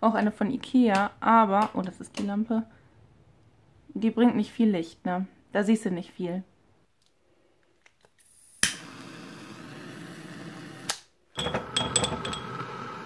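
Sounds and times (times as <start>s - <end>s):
gas lighter hissing: 8.2s - 11.0s, 12.1s - 13.0s.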